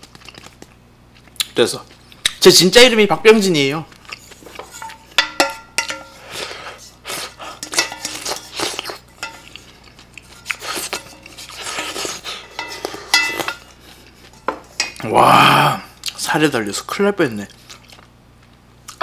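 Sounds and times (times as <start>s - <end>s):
wooden spoon scraping metal pan: 4.4s - 6.9s, 7.6s - 9.5s, 10.3s - 13.7s
metal pan clinking: 4.6s - 6.2s, 7.6s - 8.5s, 9.2s - 9.5s, 12.5s - 13.7s.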